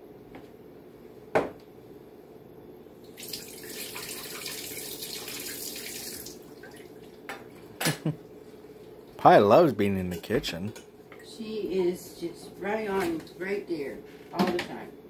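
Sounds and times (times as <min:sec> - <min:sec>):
kitchen tap running into sink: 0:03.1 - 0:06.9.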